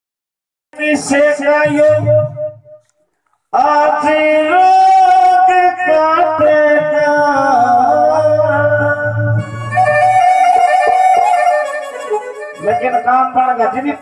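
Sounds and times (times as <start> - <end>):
devotional melody of held notes: 5.4 - 14.0.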